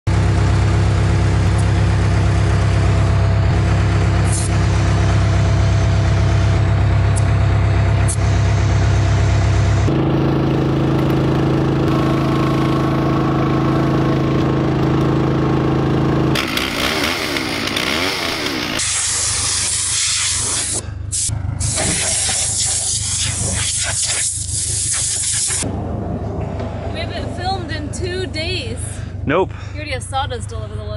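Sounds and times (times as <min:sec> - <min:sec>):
engine running: 0:00.1 - 0:30.9
compressed air hissing: 0:18.8 - 0:25.6.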